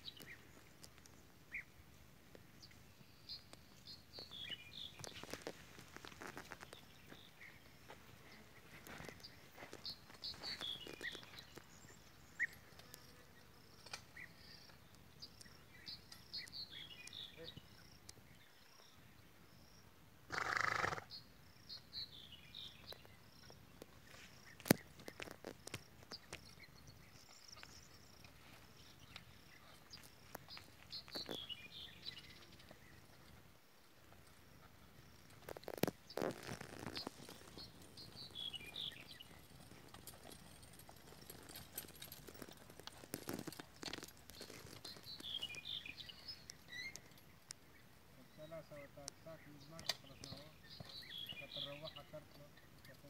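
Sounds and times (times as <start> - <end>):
insects chirping: 2.6 - 53.0
horse footsteps: 3.4 - 13.1, 22.6 - 47.2, 49.8 - 53.0
plough scraping stony soil: 35.4 - 46.0.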